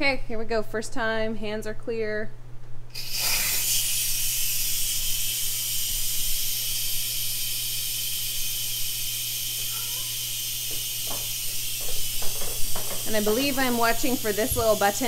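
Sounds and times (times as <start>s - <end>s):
steam hissing from pressure valve: 3.0s - 15.0s.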